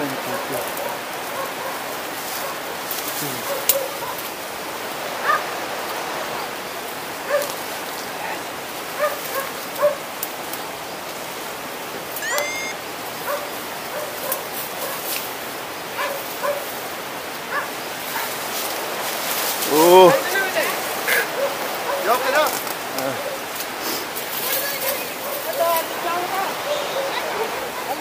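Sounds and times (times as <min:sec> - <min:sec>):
brush rustling: 0:00.0 - 0:28.0
rushing water: 0:00.0 - 0:28.0
animal barking in yelps: 0:00.2 - 0:04.3, 0:05.2 - 0:05.6, 0:07.2 - 0:07.6, 0:08.9 - 0:10.1, 0:12.1 - 0:15.2, 0:15.9 - 0:16.8, 0:17.4 - 0:18.4, 0:19.7 - 0:22.4, 0:23.0 - 0:23.5, 0:24.4 - 0:28.0
twigs snapping: 0:22.4 - 0:25.8.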